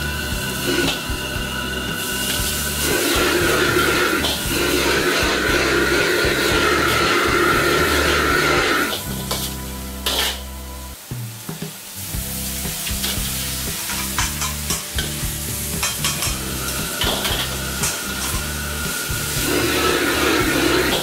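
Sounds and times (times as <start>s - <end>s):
stir-fry sizzling in a wok: 0.0s - 21.0s
metal ladle scraping and clinking: 0.6s - 10.4s, 13.0s - 18.4s.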